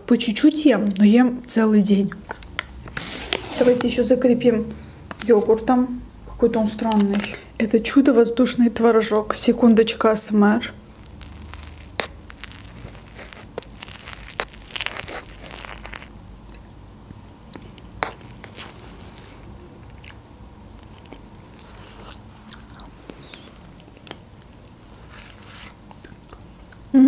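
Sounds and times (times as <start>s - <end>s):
spoon scraping plastic cup: 2.9s - 4.0s.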